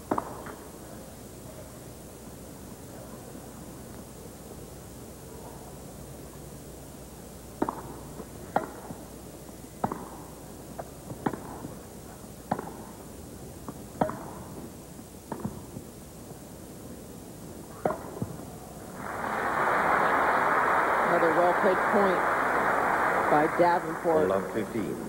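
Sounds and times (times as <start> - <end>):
rackets hitting tennis ball: 13.7 - 14.5, 15.3 - 15.8, 17.7 - 18.4.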